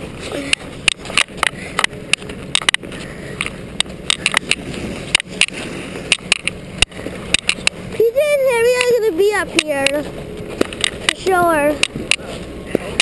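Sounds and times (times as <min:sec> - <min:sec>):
camera rustling against clothing: 0:00.0 - 0:13.0.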